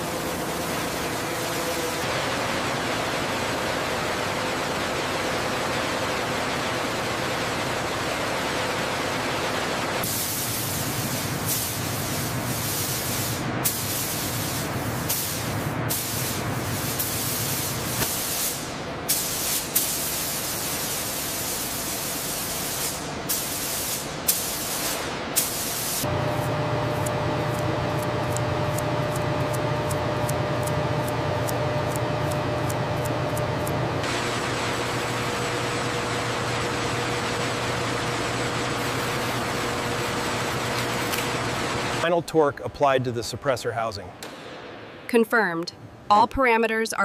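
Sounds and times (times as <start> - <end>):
paint spray guns hissing: 10.0 - 26.1, 26.9 - 35.0
orbital sanders whirring: 26.0 - 34.5.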